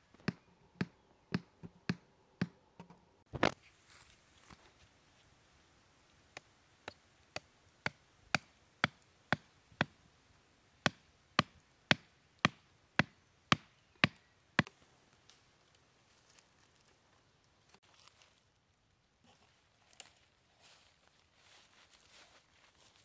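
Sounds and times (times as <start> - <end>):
hammering wooden stakes: 0.2 - 3.0, 6.4 - 10.0, 10.8 - 14.7.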